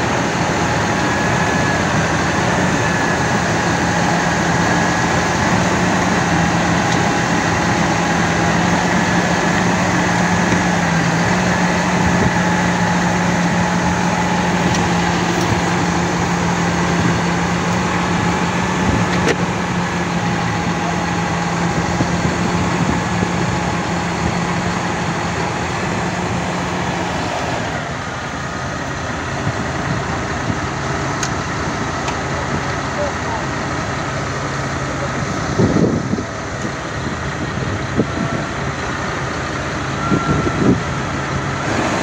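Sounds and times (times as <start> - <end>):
tractor diesel engine running: 0.0 - 42.0.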